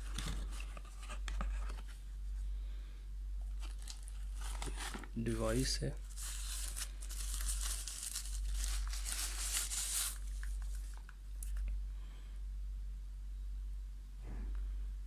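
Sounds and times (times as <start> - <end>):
steady low hum: 0.0 - 15.0
plastic bag crinkling: 3.5 - 11.6.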